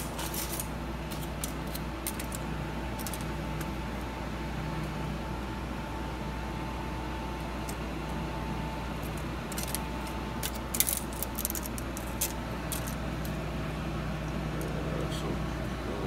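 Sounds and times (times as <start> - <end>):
low hum with faint whine: 0.0 - 16.0
metal tape measure clicking: 10.4 - 13.0.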